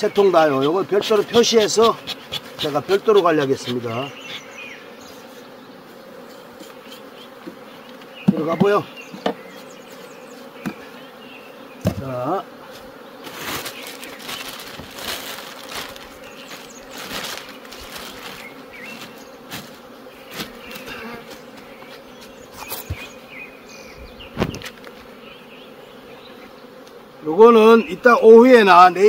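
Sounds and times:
honeybees buzzing: 0.0 - 29.0
plastic sheet rustling: 13.2 - 20.9.

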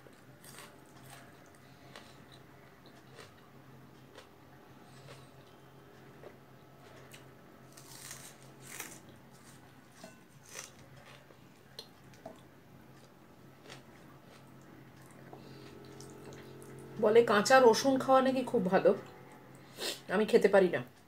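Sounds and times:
person chewing: 0.0 - 16.9
steady low hum: 0.0 - 21.0.

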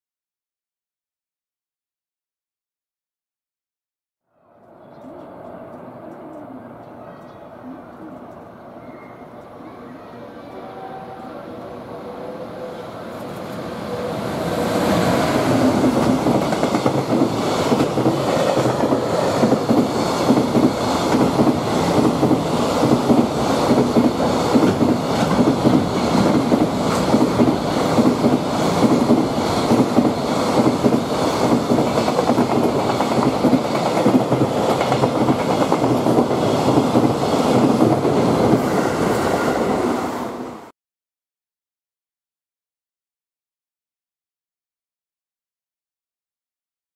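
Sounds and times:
train rumbling: 4.4 - 40.7.

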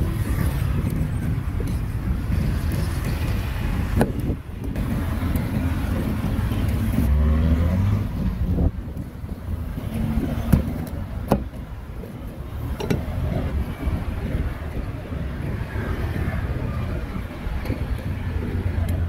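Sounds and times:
street traffic rumble: 0.0 - 19.0
vehicle engine passing close: 4.8 - 11.0.

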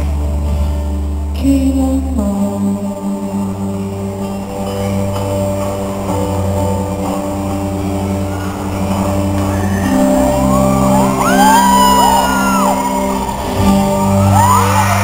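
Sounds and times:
instrumental music through pa: 0.0 - 15.0
fans screaming: 8.3 - 15.0.

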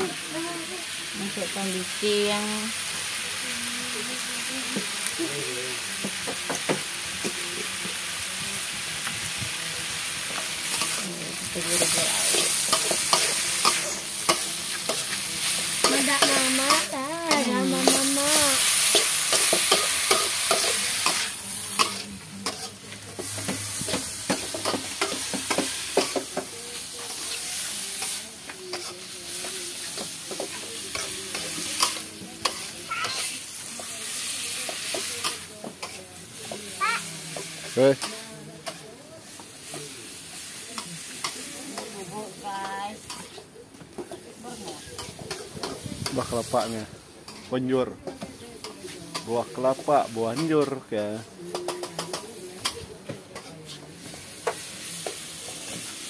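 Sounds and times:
vegetables sizzling: 0.0 - 56.0
spatula scraping in a wok: 10.0 - 43.5.

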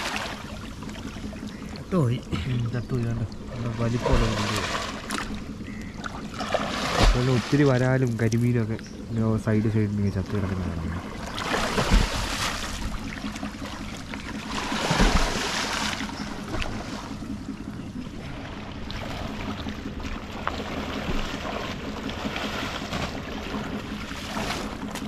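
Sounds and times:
people wading through water: 0.0 - 25.0.

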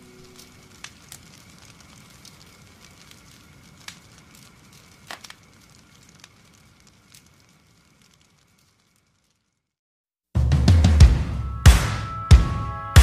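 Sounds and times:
faint crackling hiss: 0.0 - 9.8.

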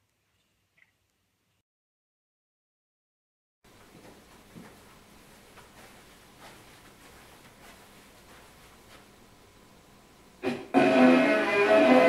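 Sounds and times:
faint room noise: 3.7 - 12.0.

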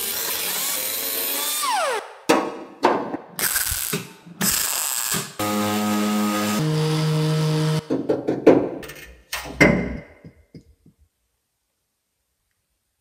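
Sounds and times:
angle grinder on sheet metal: 3.4 - 7.8
knocks and thuds: 7.9 - 8.8.

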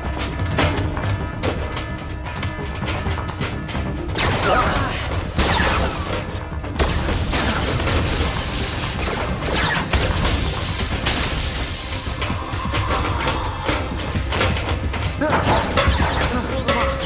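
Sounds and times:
dramatic music score: 0.0 - 17.0
blasts and showering sparks: 4.2 - 12.3.

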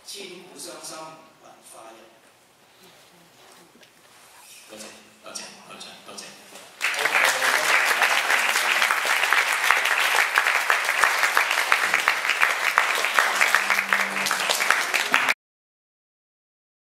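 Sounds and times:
audience applauding: 6.8 - 15.4.

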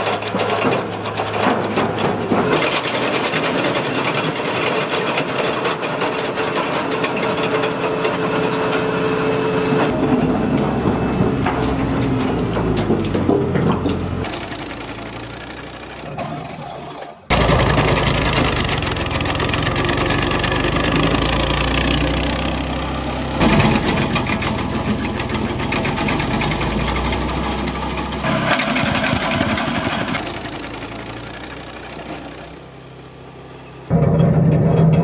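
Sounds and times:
wood chipper running: 0.0 - 35.0.

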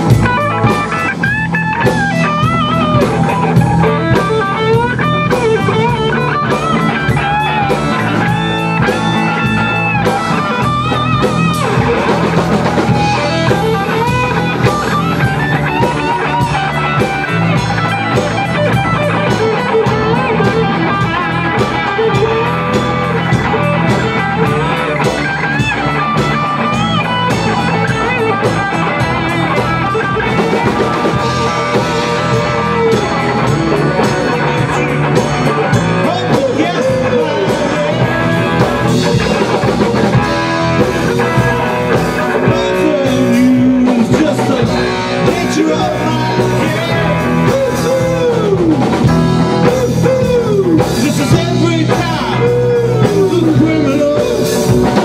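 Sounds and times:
bass guitar: 0.0 - 55.0
drum kit: 0.0 - 55.0
electric guitars: 0.0 - 55.0
man singing: 2.9 - 25.2, 27.4 - 55.0.

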